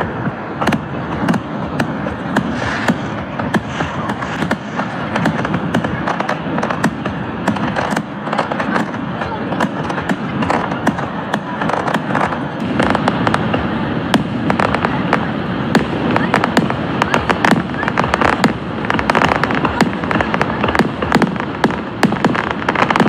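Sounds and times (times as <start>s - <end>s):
fireworks bursting and crackling: 0.0s - 23.0s
sharp pops: 0.6s - 9.0s.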